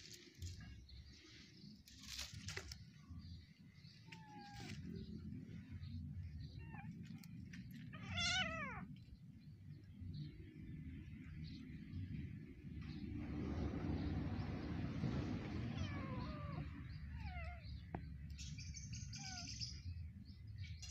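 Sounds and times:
kitten meowing: 7.9 - 8.9, 15.7 - 17.6, 19.1 - 19.6.

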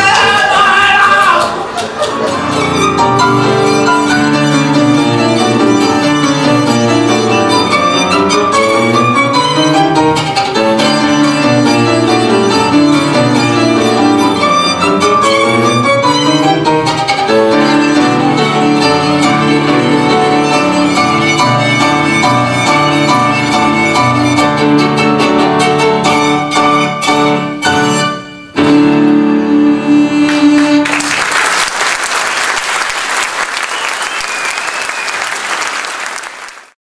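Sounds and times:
audience applause: 0.0 - 2.4, 30.6 - 36.8
piano accompaniment: 1.6 - 33.6
violin playing a melody: 2.2 - 31.1.

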